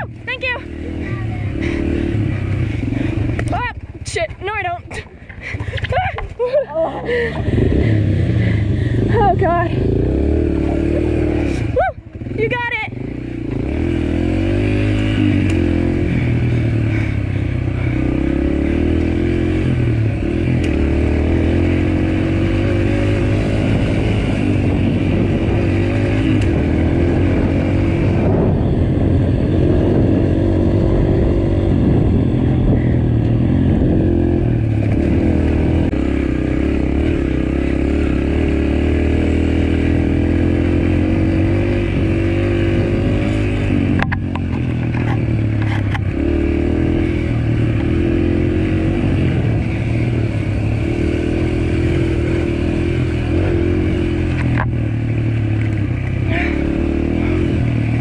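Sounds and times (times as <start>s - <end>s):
dirt bike engine revving: 0.0s - 4.8s, 6.8s - 58.0s.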